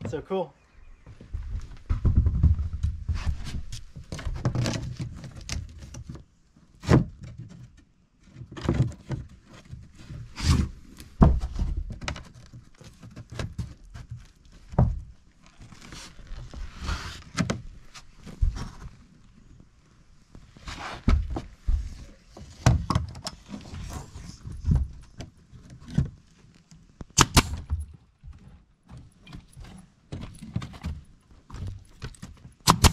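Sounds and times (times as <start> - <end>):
heavy footsteps on wooden boards: 1.0 - 4.6, 10.5 - 12.1, 21.0 - 23.0
feet scuffing and shuffling: 15.5 - 19.3, 20.2 - 22.6.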